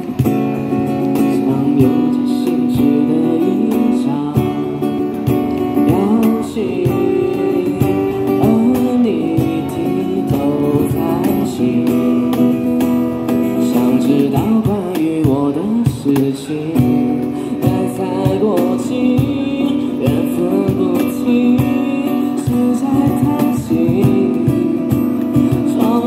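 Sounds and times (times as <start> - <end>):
acoustic guitar: 0.0 - 26.0
man singing into a microphone: 0.0 - 26.0.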